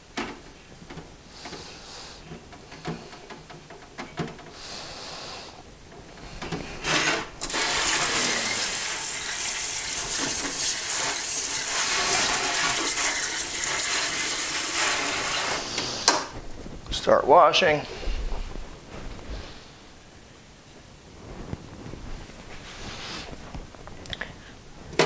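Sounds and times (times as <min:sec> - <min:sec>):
tap water splashing into sink: 0:07.5 - 0:15.5.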